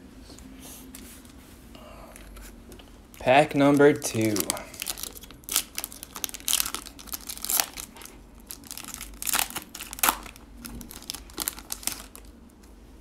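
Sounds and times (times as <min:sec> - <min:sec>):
foil wrapper tearing and crinkling: 0:03.2 - 0:12.4.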